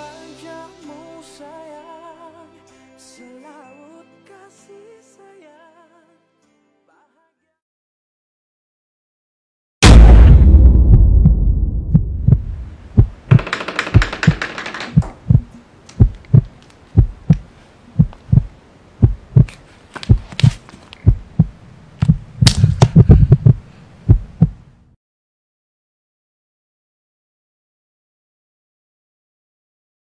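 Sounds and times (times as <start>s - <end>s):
deep boom: 9.8s - 13.4s, 21.1s - 24.5s
heartbeat thuds: 10.5s - 24.6s.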